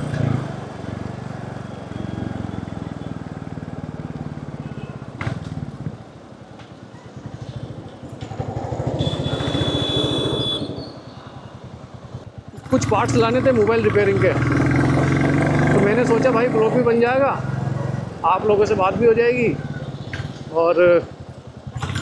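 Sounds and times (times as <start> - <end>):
motorcycle engine running: 11.6 - 16.5, 17.4 - 22.0.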